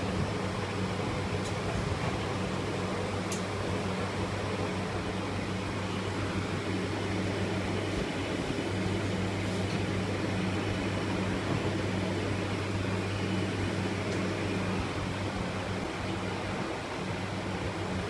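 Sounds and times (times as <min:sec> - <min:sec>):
low machine hum: 0:00.0 - 0:18.0.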